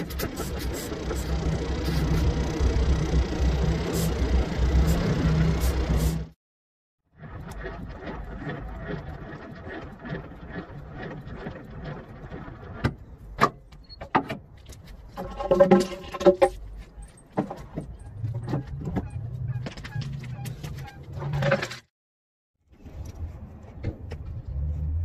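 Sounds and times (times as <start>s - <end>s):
truck engine rumbling: 0.0s - 6.4s, 7.1s - 13.8s, 14.4s - 21.4s.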